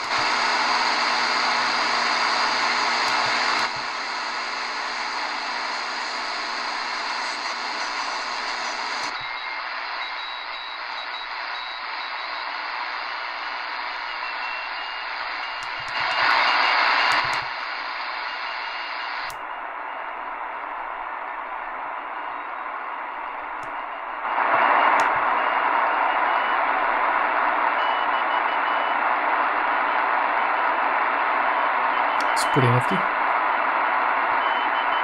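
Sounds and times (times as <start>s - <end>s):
radio static hiss: 0.0s - 35.0s
sharp clicks: 24.9s - 25.2s.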